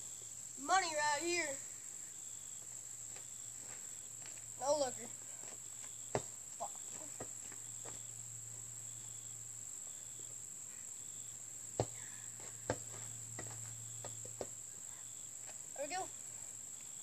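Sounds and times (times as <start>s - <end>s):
insect chorus: 0.0s - 17.0s
basketball bouncing: 6.1s - 6.4s, 11.8s - 14.6s.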